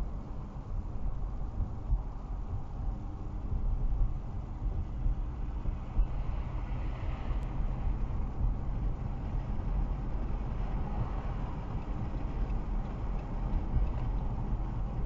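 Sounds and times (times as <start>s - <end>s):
car interior road rumble: 0.0s - 15.0s.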